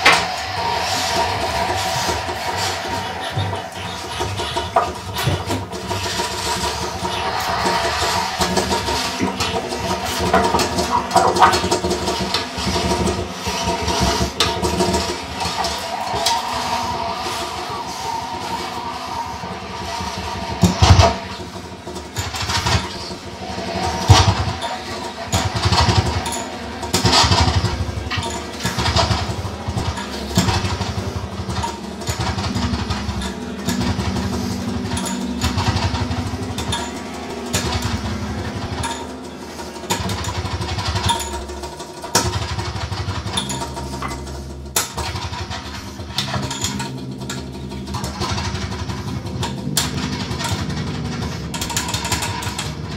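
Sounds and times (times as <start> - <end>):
irregular noisy bursts: 0.0 - 42.1
pulsing low rumble: 0.0 - 52.9.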